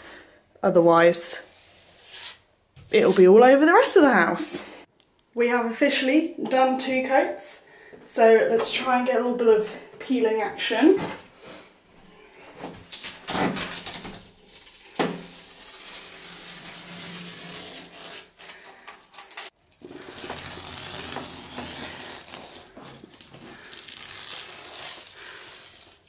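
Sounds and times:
masking tape peeling off wall: 0:12.8 - 0:26.0.

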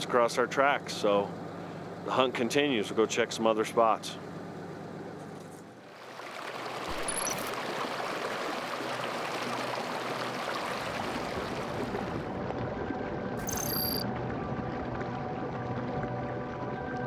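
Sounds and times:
stream splashing over rocks: 0:05.8 - 0:12.2.

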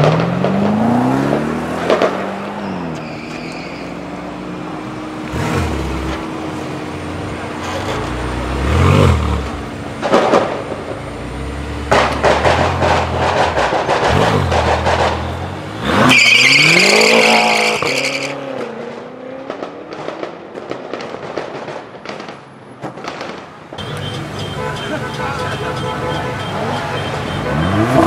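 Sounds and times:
tires squealing: 0:00.0 - 0:06.3, 0:11.9 - 0:18.7, 0:25.4 - 0:28.0
car engines revving with exhaust crackle: 0:00.0 - 0:28.0.

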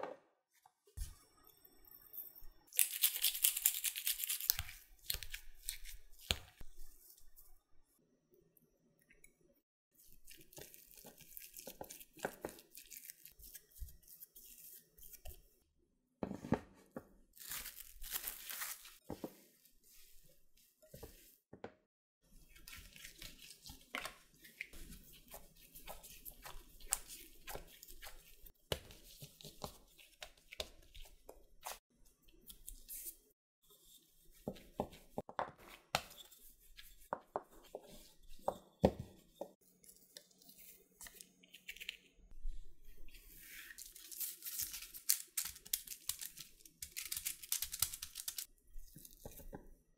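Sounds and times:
food crinkling and tearing: 0:02.7 - 0:06.6, 0:10.2 - 0:14.6, 0:17.4 - 0:19.0, 0:43.7 - 0:49.3.

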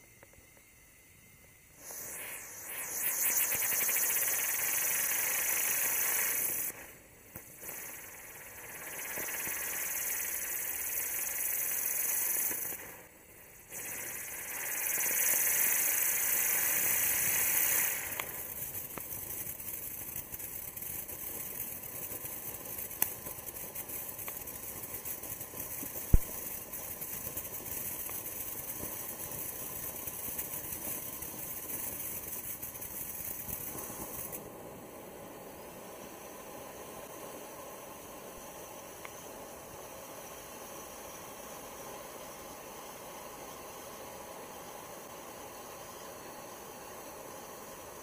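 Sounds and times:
firework spraying sparks hissing: 0:01.2 - 0:48.0
sharp firework pops: 0:01.8 - 0:13.1, 0:13.7 - 0:34.4.

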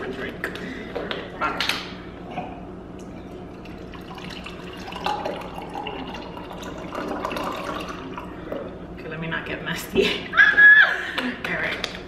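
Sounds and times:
juice pouring into a glass: 0:03.0 - 0:08.8.

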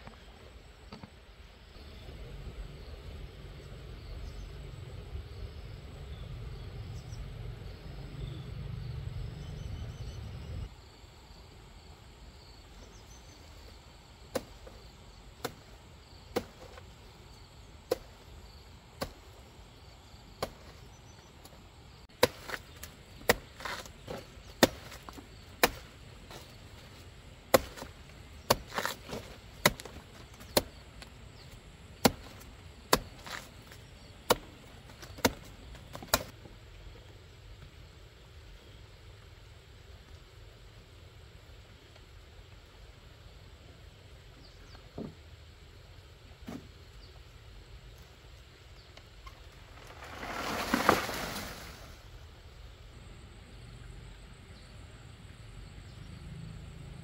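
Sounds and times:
blade chopping: 0:16.3 - 0:16.9, 0:17.9 - 0:18.2, 0:19.0 - 0:19.4, 0:22.1 - 0:26.6, 0:27.5 - 0:30.8, 0:32.0 - 0:36.3.

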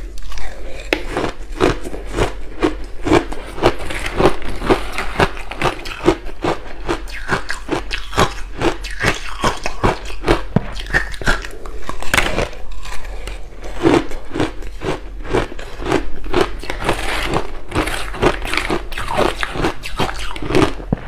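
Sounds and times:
ice being bitten and chewed: 0:00.0 - 0:21.0.

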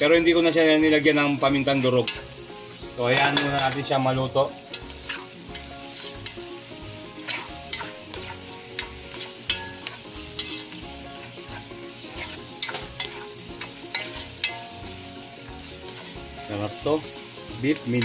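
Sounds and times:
meat sizzling in a pot: 0:00.0 - 0:18.0
spatula scraping a pot: 0:04.7 - 0:06.4, 0:07.1 - 0:10.8, 0:11.4 - 0:14.6, 0:15.8 - 0:16.3.

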